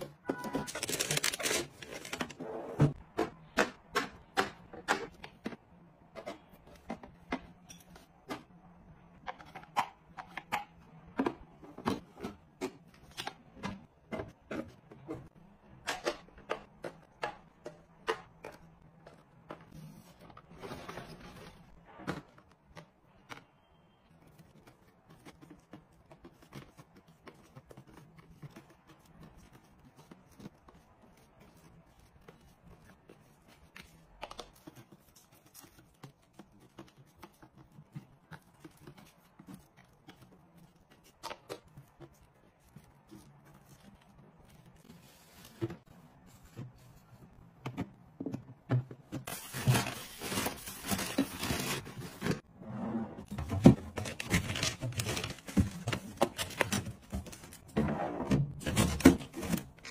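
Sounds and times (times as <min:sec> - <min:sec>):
rustling: 0:53.2 - 0:57.8.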